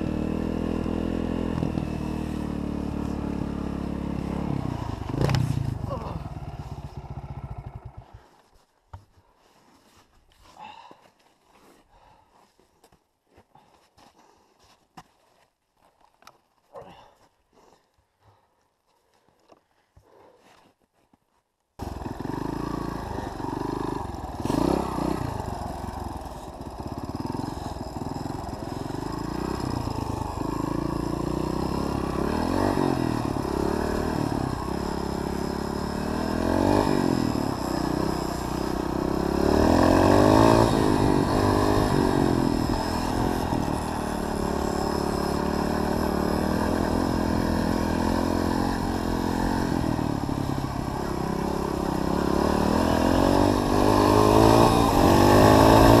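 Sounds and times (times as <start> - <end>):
motorcycle engine revving: 0.0 - 8.3, 21.8 - 56.0.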